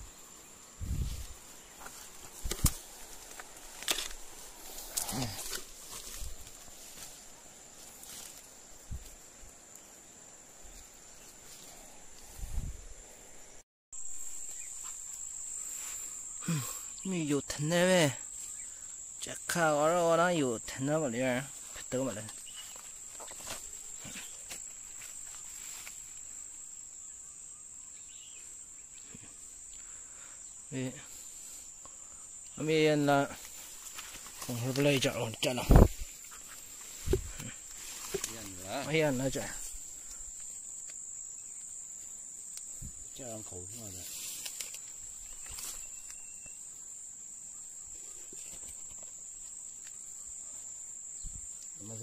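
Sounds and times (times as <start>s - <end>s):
hands among sticks and leaves: 0.0s - 10.0s, 21.6s - 26.4s, 31.1s - 43.0s, 43.7s - 46.6s
insects singing: 0.0s - 52.0s.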